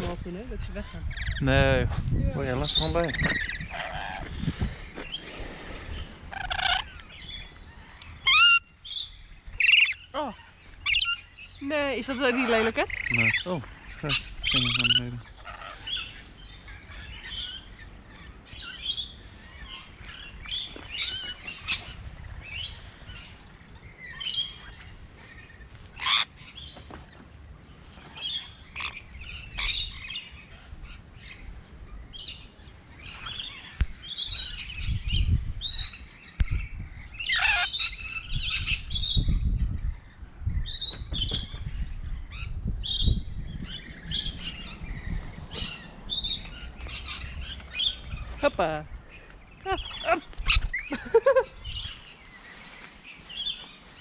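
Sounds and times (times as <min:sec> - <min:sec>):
low rumble on microphone: 0:00.0 - 0:07.9, 0:38.0 - 0:49.5
lorikeets chirping and squawking: 0:00.0 - 0:54.0.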